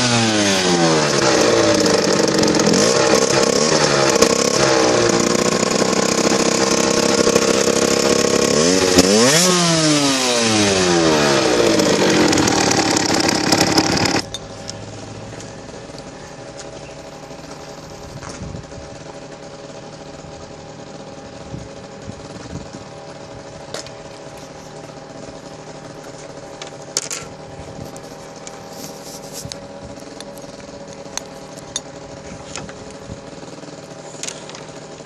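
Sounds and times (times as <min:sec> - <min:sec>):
two-stroke motorcycle engine idling: 0:00.0 - 0:35.0.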